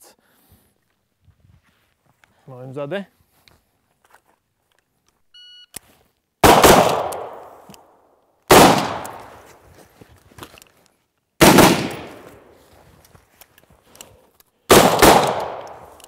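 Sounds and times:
electronic beep: 5.3s - 5.8s
rifle shots echoing: 6.4s - 9.5s, 11.4s - 12.6s, 14.7s - 16.0s.

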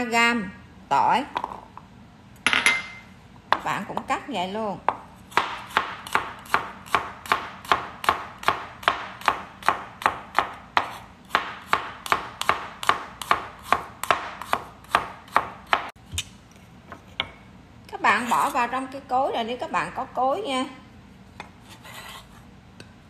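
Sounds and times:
knife chopping on plastic board: 4.9s - 16.0s.

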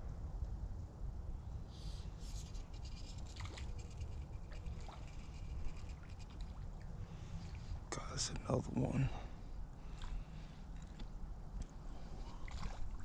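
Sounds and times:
low steady rumble: 0.0s - 13.0s
creek trickling: 1.8s - 8.6s, 9.7s - 13.0s
brief rustles and clicks: 2.2s - 6.6s.

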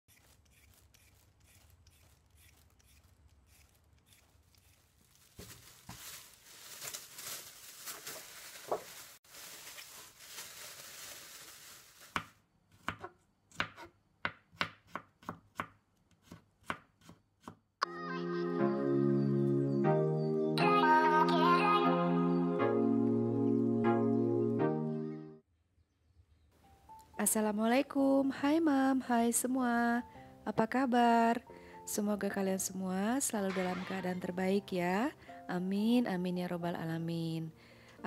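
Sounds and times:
knife chopping on plastic board: 12.2s - 17.6s
music: 17.8s - 25.4s, 26.6s - 38.0s.

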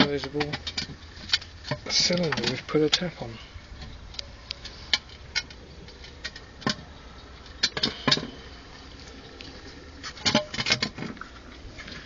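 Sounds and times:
sharp clicks and knocks: 0.0s - 3.1s, 3.8s - 8.4s, 10.0s - 11.4s.

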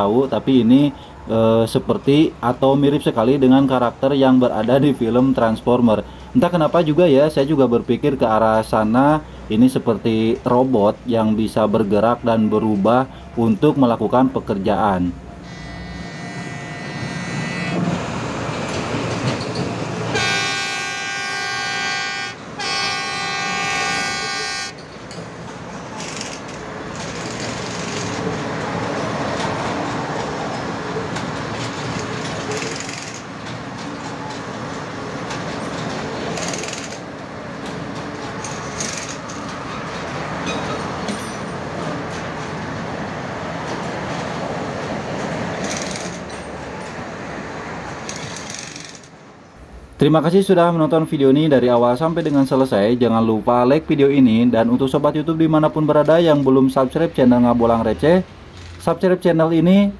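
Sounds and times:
machine horn blasts: 15.4s - 17.9s, 20.1s - 24.8s
track laying machine running: 15.4s - 42.2s, 45.5s - 46.9s, 47.9s - 49.1s.

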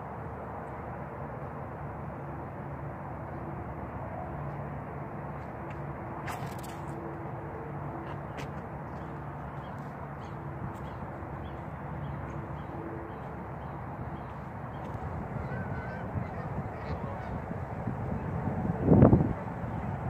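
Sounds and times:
geese calling faintly: 8.3s - 17.6s.

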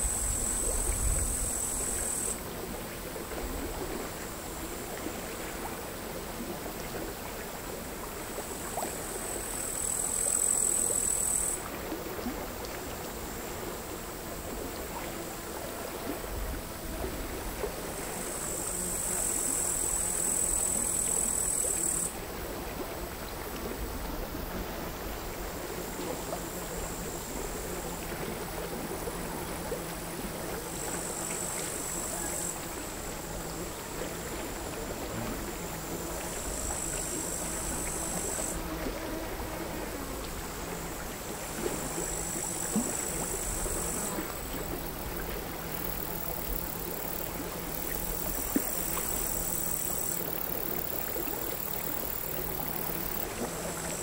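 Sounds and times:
crickets buzzing song: 0.0s - 2.5s, 8.3s - 11.7s, 17.1s - 22.2s, 24.5s - 54.0s.

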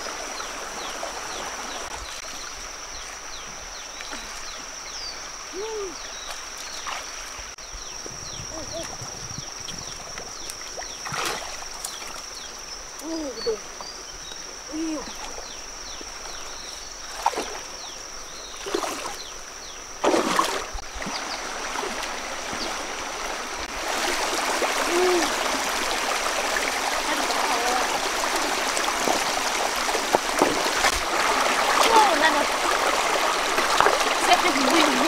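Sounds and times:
wading splashes in river: 0.0s - 7.6s, 8.4s - 13.8s, 14.8s - 35.0s
stream rushing over rocks: 20.0s - 35.0s.

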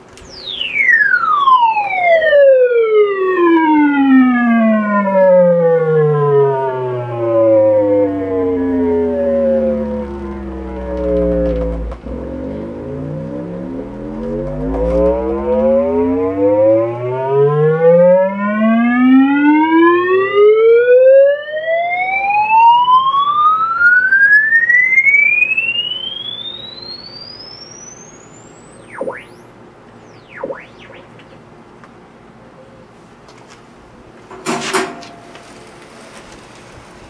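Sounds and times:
swooping chirps: 0.2s - 2.6s, 6.5s - 19.5s, 22.8s - 31.7s
rising tone sweep: 0.3s - 21.0s, 22.7s - 31.6s.

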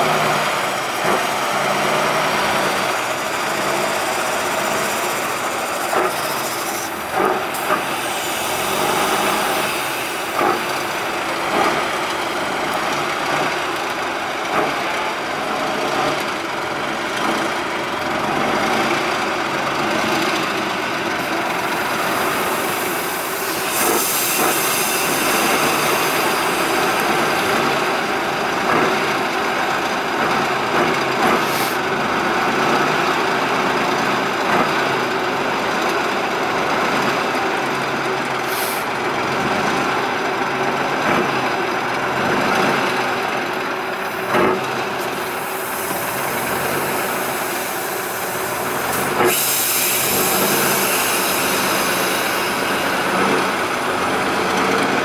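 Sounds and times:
diesel truck engine in mud: 0.0s - 55.0s
short air hisses: 5.9s - 11.1s, 21.7s - 27.6s, 31.4s - 31.8s, 38.4s - 38.9s, 45.0s - 53.4s.

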